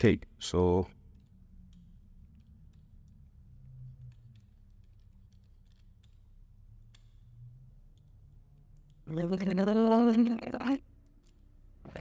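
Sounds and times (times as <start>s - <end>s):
hands handling plastic connectors: 3.9s - 7.1s.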